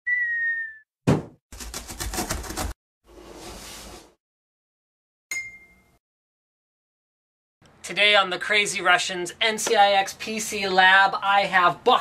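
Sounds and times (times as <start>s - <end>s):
dipping whistle tone: 0.0s - 0.9s
bright ding: 5.3s - 6.0s.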